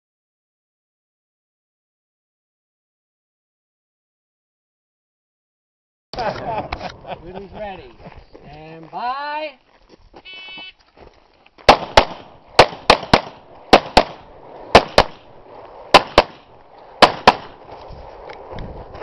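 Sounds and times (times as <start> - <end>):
pistol gunshots: 11.7 - 17.6.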